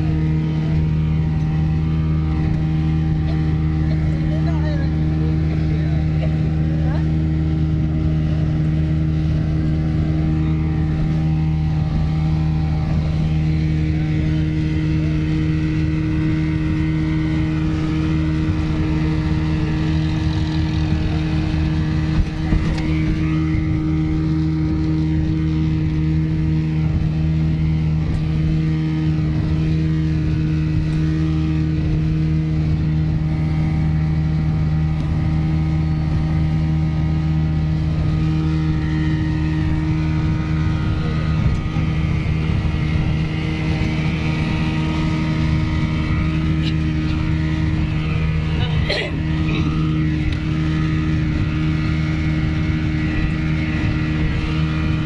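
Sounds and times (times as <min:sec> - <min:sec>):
speedboat engine droning: 0:00.0 - 0:55.0.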